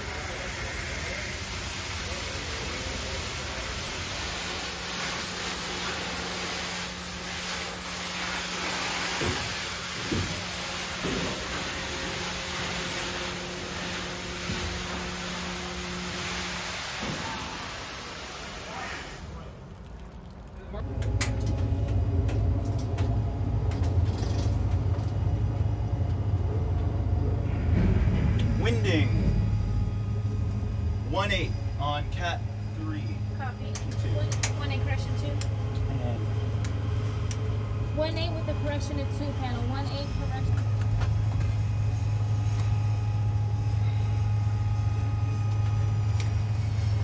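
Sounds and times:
hose water spraying on chain: 0.0 - 20.8
low mechanical rumble: 0.0 - 47.0
low steady hum: 0.0 - 47.0.

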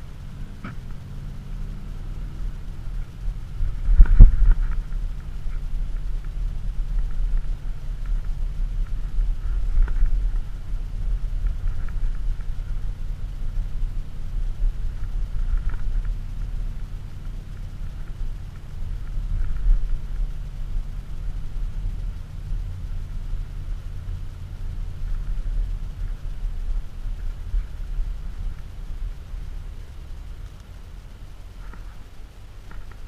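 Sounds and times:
engine low rumble: 0.0 - 33.0
tyre and road noise: 0.0 - 33.0.

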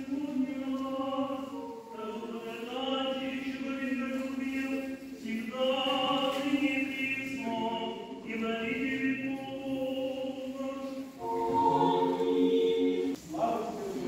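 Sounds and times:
choir chanting: 6.0 - 14.0.

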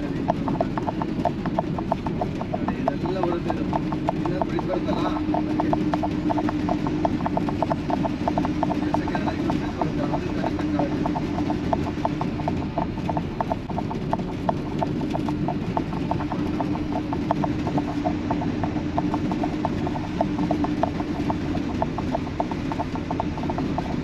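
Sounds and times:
constant hum: 0.0 - 24.0
light regular ticking: 0.0 - 24.0
truck road and engine rumble: 0.0 - 24.0.

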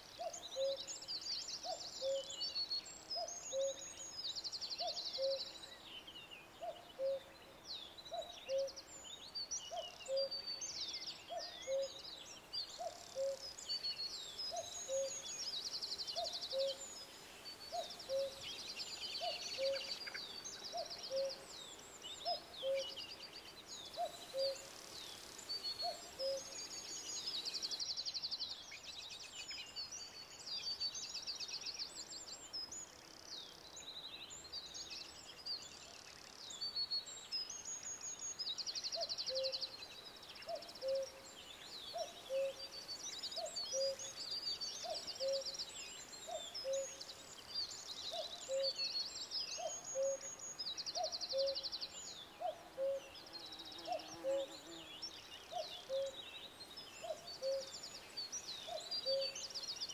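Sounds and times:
small birds chirping and trilling: 0.0 - 59.9.

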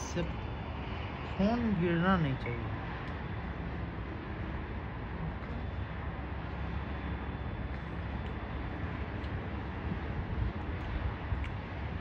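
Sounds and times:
low outdoor ambient rumble: 0.0 - 12.0.

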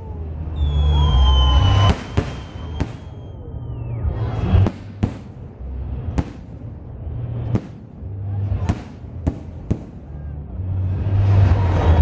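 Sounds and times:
low rumble: 0.0 - 12.0
falling whistling tone: 0.5 - 4.2.

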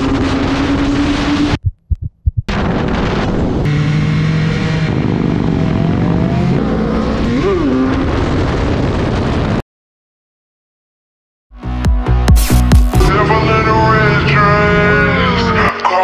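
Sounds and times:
wind noise on microphone: 0.0 - 3.8, 4.7 - 9.6.

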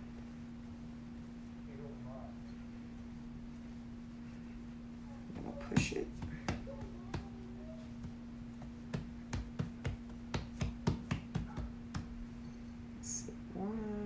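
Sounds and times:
hands patting dough: 5.2 - 12.4.

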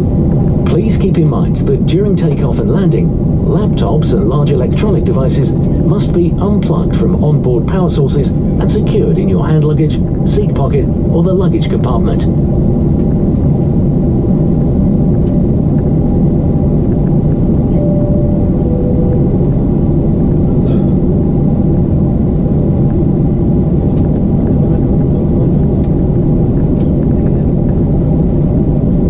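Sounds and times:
airplane cabin drone: 0.0 - 29.0
soft two-note tone: 17.7 - 19.9.

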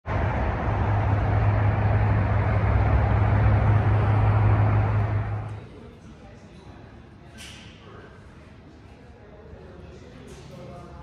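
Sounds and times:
engine droning with low hum: 0.0 - 5.8.

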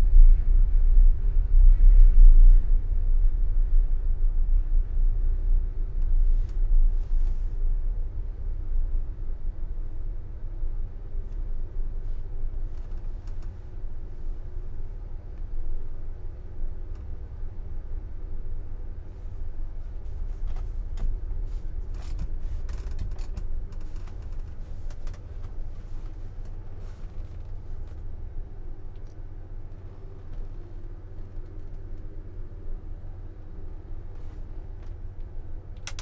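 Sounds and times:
faint steady hum: 0.0 - 36.0
ferry engines rumbling: 11.0 - 36.0.

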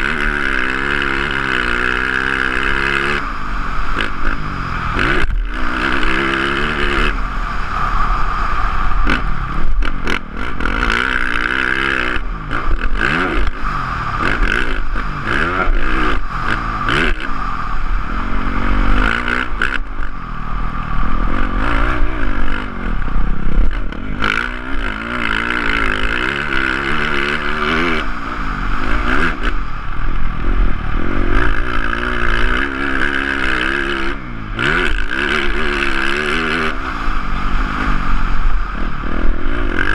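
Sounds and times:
motocross bike engine revving: 0.0 - 39.9.

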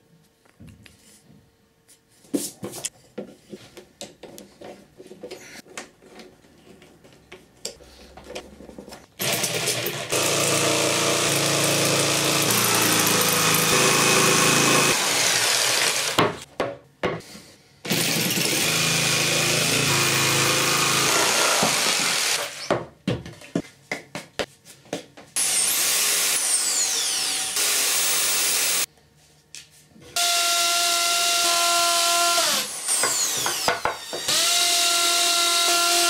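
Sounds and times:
electric jigsaw sawing wood: 9.2 - 16.4, 17.9 - 22.7, 25.4 - 28.9, 30.2 - 36.0.

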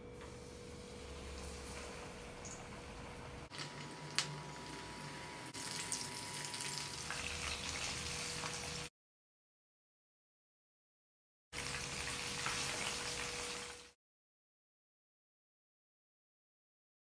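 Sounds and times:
chicken deep-frying in oil: 0.1 - 8.9, 11.6 - 14.0.

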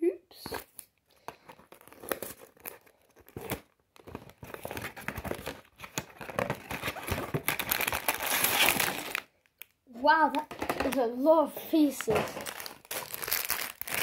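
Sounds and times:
plastic bags crinkling: 1.2 - 9.8, 10.5 - 14.0
cardboard flaps tearing: 4.7 - 9.2.

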